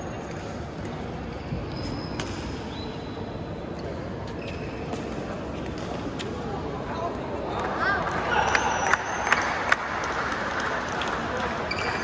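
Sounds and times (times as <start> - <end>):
shoe squeaks on court: 1.3 - 5.4
racket hitting shuttlecock: 2.1 - 2.6.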